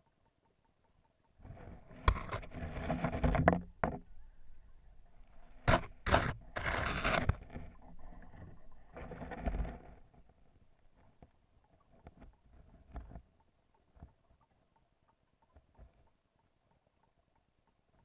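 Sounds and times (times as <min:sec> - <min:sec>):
rough scraping against twigs: 0:01.4 - 0:11.2.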